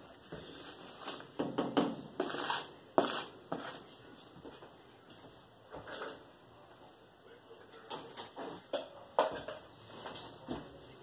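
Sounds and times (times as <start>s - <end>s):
rustling scrapes: 2.2s - 4.0s.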